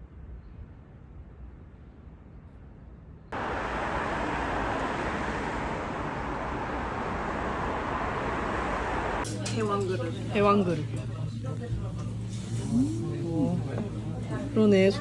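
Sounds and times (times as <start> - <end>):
city street traffic roar: 3.3 - 9.3.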